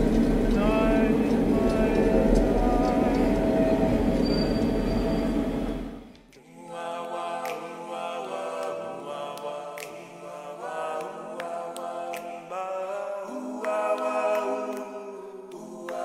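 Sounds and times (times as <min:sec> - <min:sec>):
low rumble: 0:00.0 - 0:06.0
choir singing sustained chords: 0:00.0 - 0:16.0.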